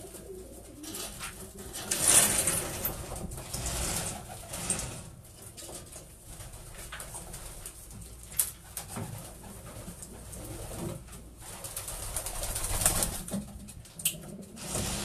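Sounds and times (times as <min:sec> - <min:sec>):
pigeons cooing: 0:00.0 - 0:03.1, 0:14.1 - 0:15.0
wings flapping: 0:08.4 - 0:15.0.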